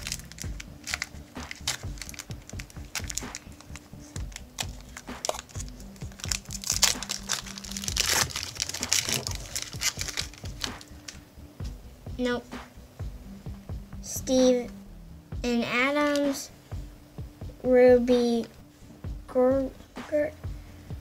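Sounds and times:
wrapper crinkling: 0:00.0 - 0:11.2
quiet background music: 0:00.0 - 0:21.0.

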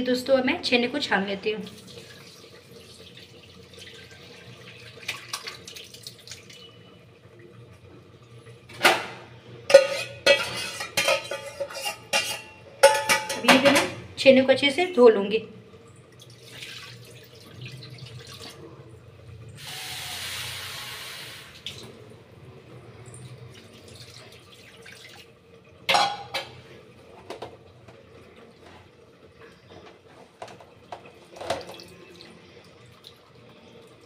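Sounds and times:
water trickling through strainer: 0:15.9 - 0:18.6
water splashing onto cloth: 0:16.2 - 0:18.6.

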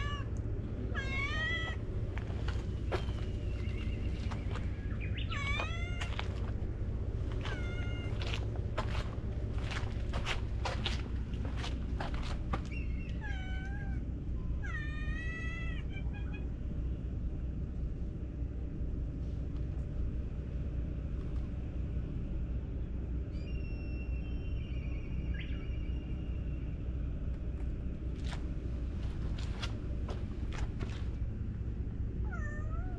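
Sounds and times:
cat meowing: 0:00.0 - 0:00.3, 0:00.9 - 0:01.8, 0:05.2 - 0:06.3, 0:07.4 - 0:08.2, 0:13.0 - 0:14.0, 0:14.6 - 0:16.4, 0:32.2 - 0:32.9
steady low rumble: 0:00.0 - 0:32.9.

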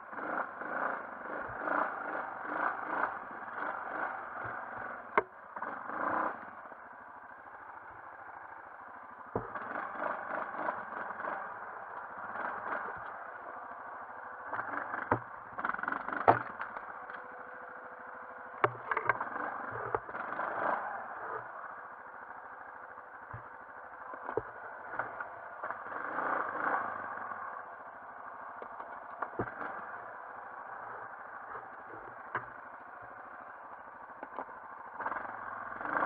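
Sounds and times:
atv engine revving: 0:00.0 - 0:36.0
knocks and scrapes on branches: 0:14.5 - 0:17.2, 0:18.6 - 0:21.5, 0:28.6 - 0:30.0.

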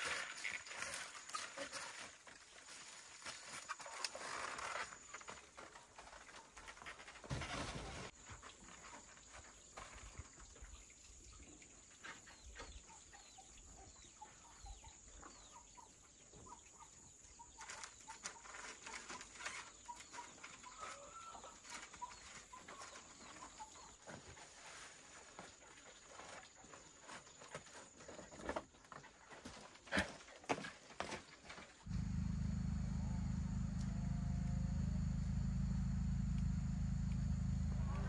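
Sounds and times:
small birds chirping: 0:08.1 - 0:29.2.

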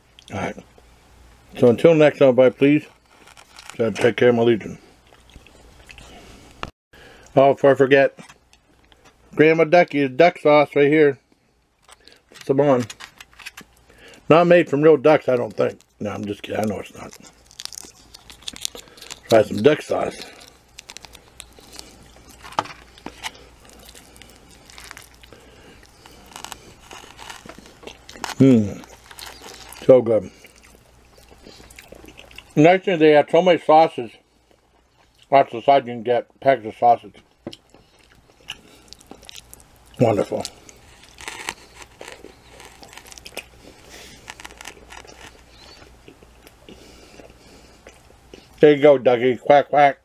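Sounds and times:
soft eating noises: 0:00.0 - 0:07.4, 0:10.7 - 0:32.9, 0:33.8 - 0:49.5
chewing: 0:05.0 - 0:06.2, 0:15.5 - 0:32.6, 0:37.5 - 0:48.6.

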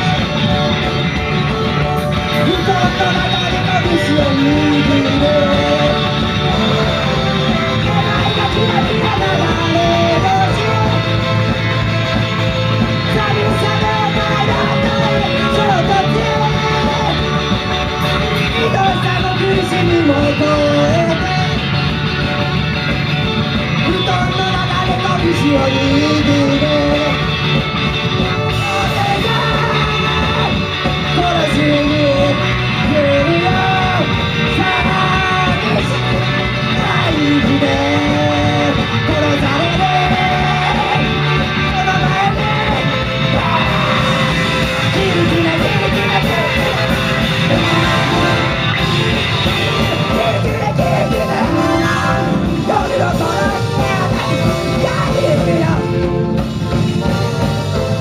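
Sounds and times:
person singing: 0:00.0 - 0:22.5, 0:23.5 - 0:58.0
live rock band: 0:00.0 - 0:58.0.

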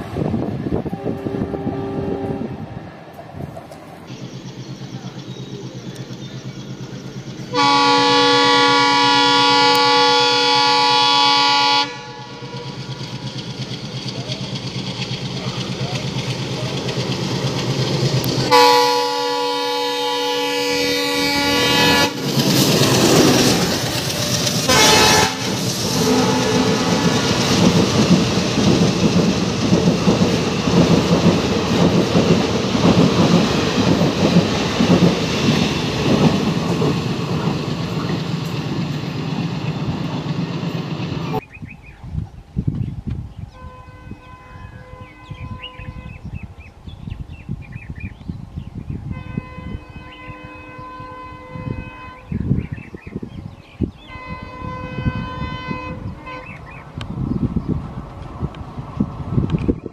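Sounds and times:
train wheels rumbling on rails: 0:00.0 - 0:43.4, 0:44.2 - 0:59.9
locomotive air horn blasts: 0:00.8 - 0:02.8, 0:07.5 - 0:12.8, 0:18.5 - 0:22.3, 0:24.2 - 0:27.4, 0:43.5 - 0:46.2, 0:49.1 - 0:52.5, 0:54.1 - 0:56.8
birds chirping: 0:03.8 - 0:07.8, 0:40.8 - 0:49.0, 0:49.7 - 0:57.8.

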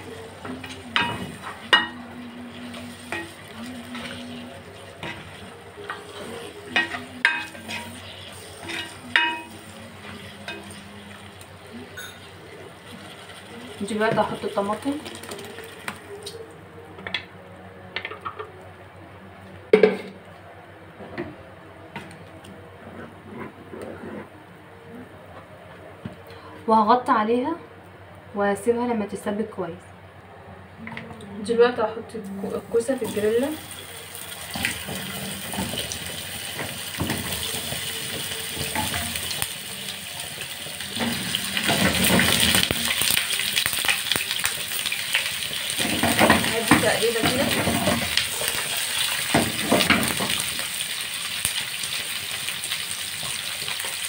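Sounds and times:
vegetables sizzling in oil: 0:00.0 - 0:16.4, 0:32.4 - 0:54.0.

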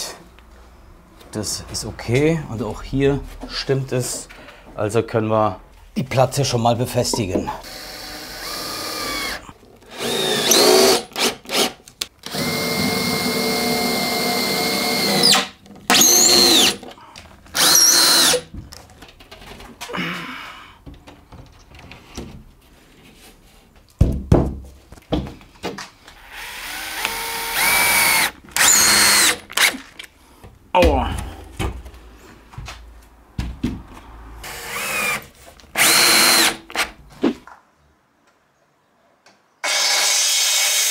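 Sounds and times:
cordless drill driving screws: 0:07.6 - 0:16.9, 0:17.5 - 0:18.5, 0:26.2 - 0:29.8, 0:34.4 - 0:37.0, 0:39.6 - 0:40.9.

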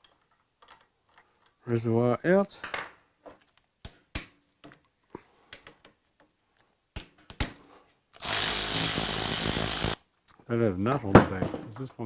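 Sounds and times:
cordless electric ratchet running: 0:08.2 - 0:10.0.

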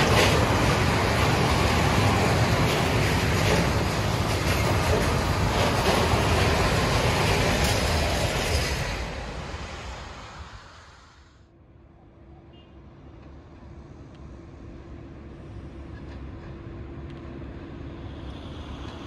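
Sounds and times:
clicks at rail joints: 0:00.0 - 0:01.7, 0:02.5 - 0:08.8
train wheels rumbling on rail: 0:00.0 - 0:11.2, 0:13.1 - 0:19.0.

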